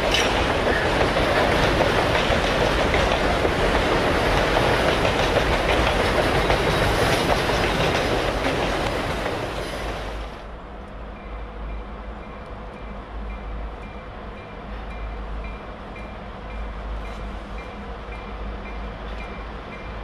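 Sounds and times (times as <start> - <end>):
wheels clicking over rail joints: 0.0 - 10.4
freight train rolling past: 0.0 - 20.0.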